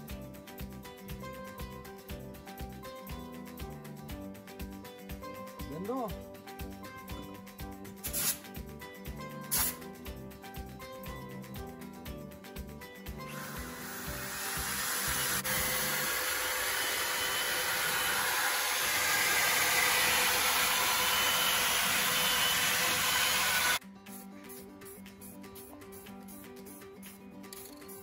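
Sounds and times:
background music: 0.0s - 28.0s
drill with abrasive brush on metal: 13.3s - 23.8s.

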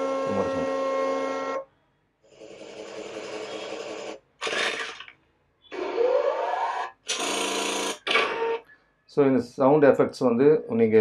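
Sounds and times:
buzzing chainsaw-like effect: 0.0s - 1.5s.

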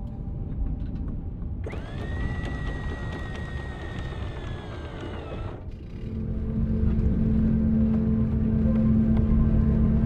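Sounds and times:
windlass motor whining: 1.6s - 9.1s
low rumble: 5.3s - 10.0s.

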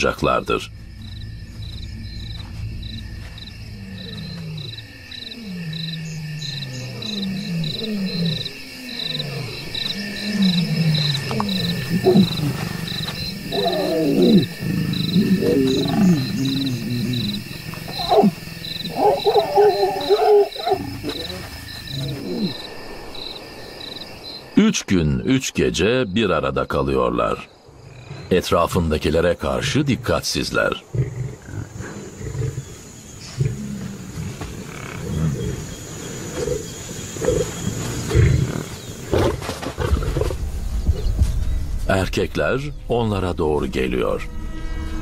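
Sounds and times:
crickets chirping: 0.0s - 45.0s
lions moaning and growling: 3.7s - 22.6s, 30.8s - 40.4s.

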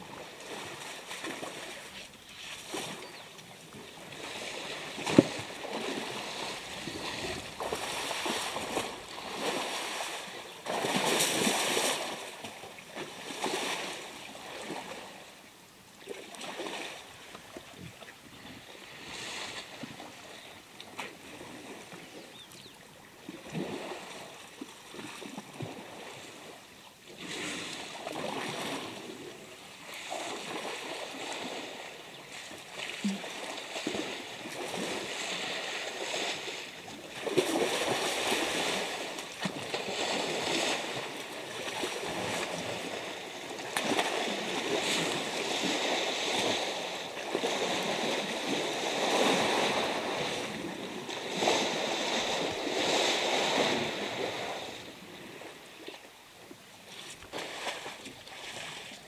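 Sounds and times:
elephants splashing muddy water: 0.1s - 3.2s, 3.9s - 15.2s, 29.8s - 54.7s, 57.2s - 59.0s.

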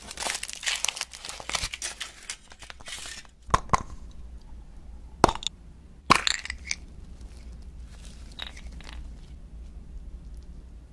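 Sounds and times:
crunching: 0.0s - 4.1s.

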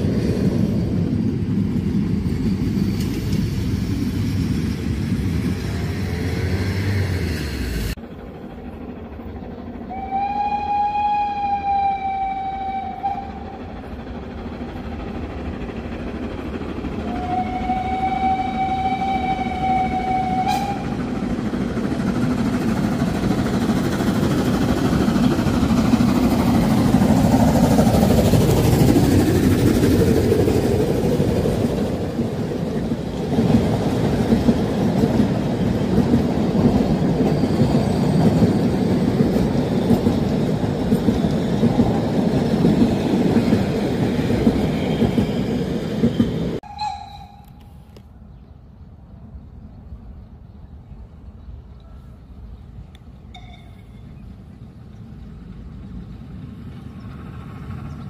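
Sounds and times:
train rolling past on rails: 0.0s - 58.0s
steam whistle blasts: 9.9s - 13.5s, 17.0s - 21.0s, 46.6s - 47.7s.

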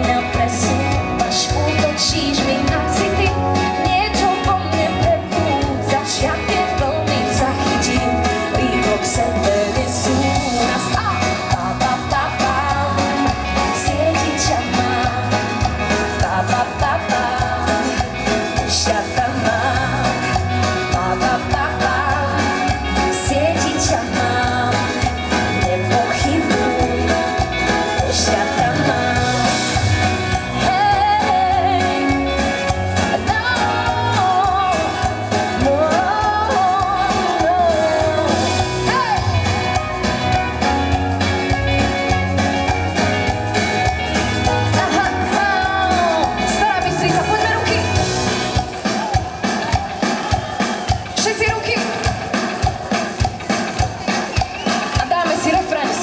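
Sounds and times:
woman singing: 0.0s - 40.0s, 44.4s - 48.5s, 54.9s - 56.0s
live pop band playing: 0.0s - 56.0s.

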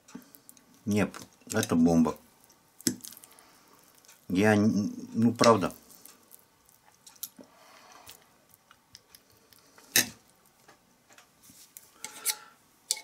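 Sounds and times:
cutlery in wet food: 12.0s - 13.0s.

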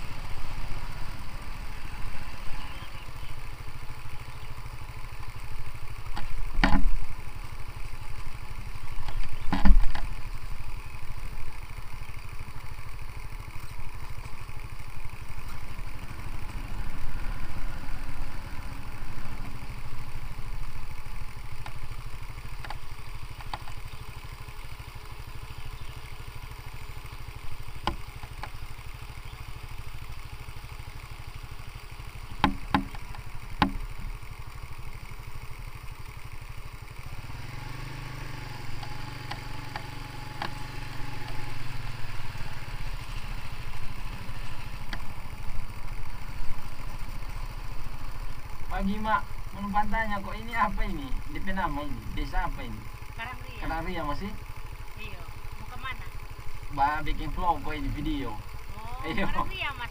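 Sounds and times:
motorcycle engine running: 0.0s - 59.9s
sharp knocks: 6.2s - 6.9s, 32.4s - 33.8s.

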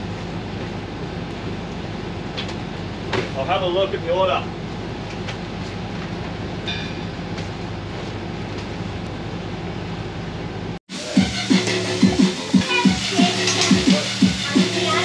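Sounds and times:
extraction fans droning: 0.0s - 15.0s
music with a beat: 10.9s - 15.0s.

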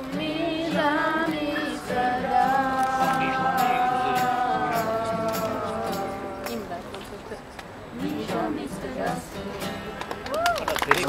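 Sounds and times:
music: 0.0s - 6.7s, 8.0s - 10.1s.

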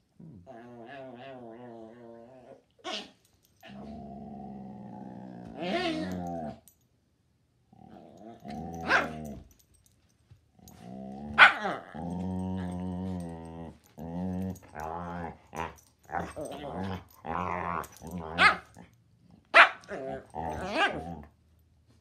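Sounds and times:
dogs growling: 0.2s - 6.7s, 7.7s - 9.7s, 10.6s - 21.4s
dog barks and yips: 8.8s - 9.3s, 11.4s - 11.8s, 18.3s - 18.7s, 19.5s - 21.0s.

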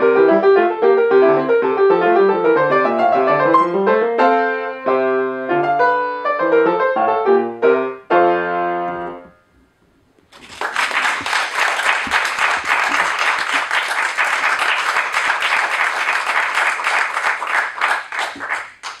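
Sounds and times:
audience applauding: 10.3s - 19.0s.

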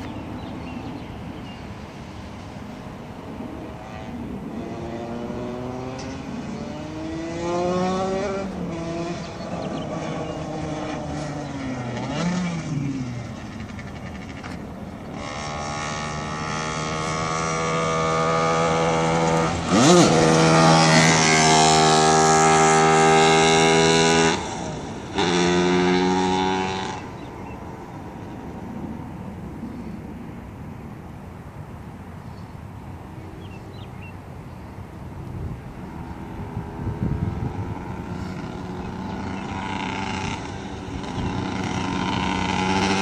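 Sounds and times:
kart engine at high revs: 3.3s - 27.6s, 35.5s - 43.0s.

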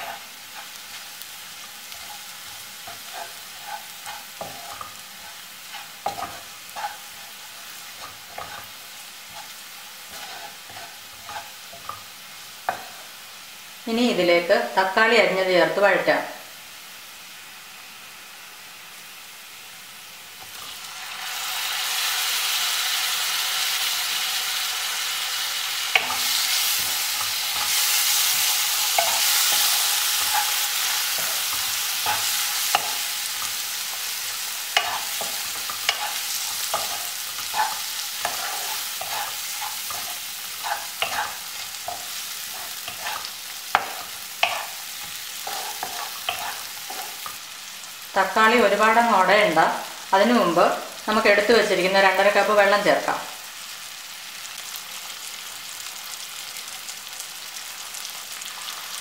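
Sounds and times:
tomatoes sizzling in hot oil: 0.0s - 59.0s
wooden spatula scraping a pan: 1.8s - 12.1s, 12.7s - 13.1s, 26.0s - 47.4s.

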